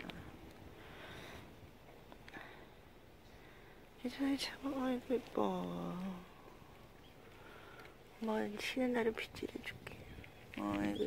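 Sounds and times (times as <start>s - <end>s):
faint clicks: 6.8s - 8.4s, 9.7s - 10.9s.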